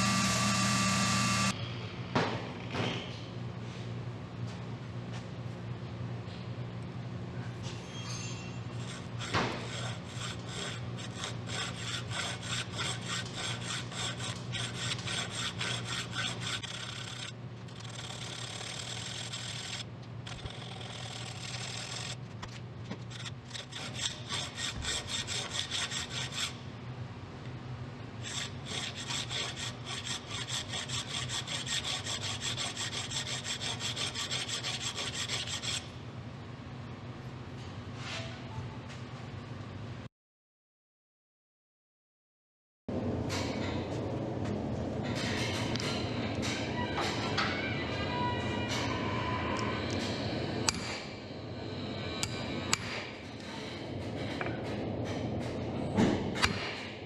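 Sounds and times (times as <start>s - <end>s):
file rasping on steel: 0.0s - 1.5s, 8.8s - 19.8s, 23.1s - 26.6s, 28.2s - 35.9s.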